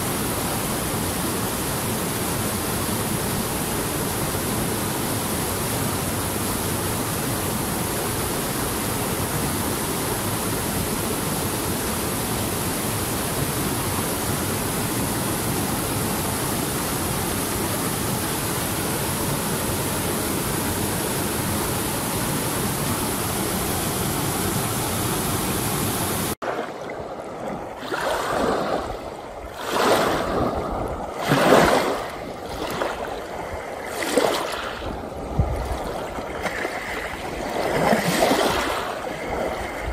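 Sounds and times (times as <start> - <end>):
stream rushing over boulders: 0.0 - 39.9
waves washing on pebble shore: 27.7 - 39.9.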